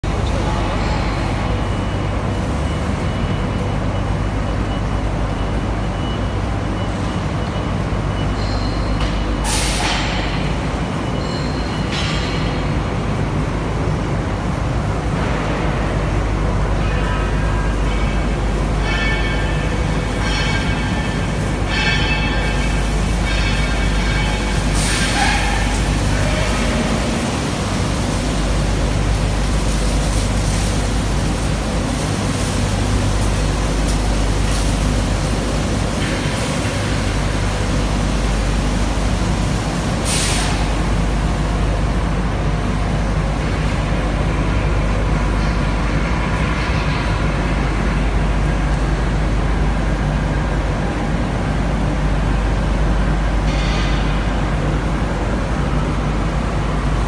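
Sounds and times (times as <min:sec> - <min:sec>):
machinery low hum: 0:00.0 - 0:57.0
sharp hiss of air: 0:09.4 - 0:10.2, 0:24.7 - 0:26.0, 0:40.0 - 0:41.0.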